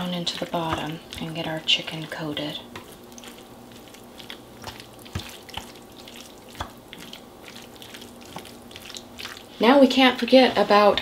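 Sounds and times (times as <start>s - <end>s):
spoon stirring thick sauce: 0.0s - 11.0s.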